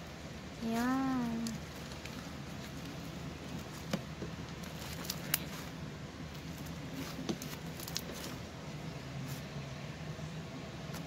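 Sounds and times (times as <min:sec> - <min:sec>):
slime squishing by hand: 0:00.8 - 0:08.4.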